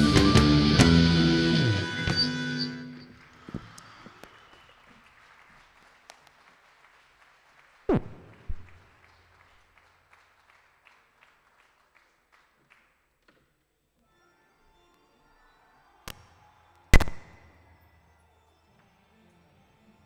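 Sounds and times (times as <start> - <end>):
audience applause: 3.0 - 13.0.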